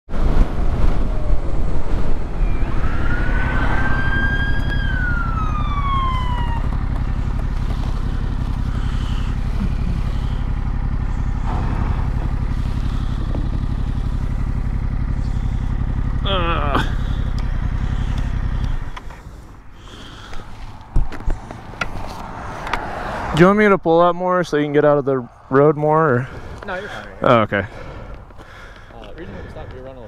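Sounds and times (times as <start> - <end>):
police siren wail: 1.0 - 19.0
motorcycle engine idling: 3.0 - 21.8, 26.2 - 30.0.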